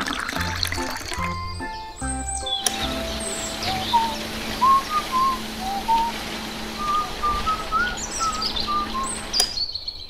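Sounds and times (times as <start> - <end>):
person whistling a tune: 0.4 - 6.2, 6.8 - 9.2
steady low hum: 2.7 - 9.5
faint bird chirps: 6.8 - 10.0.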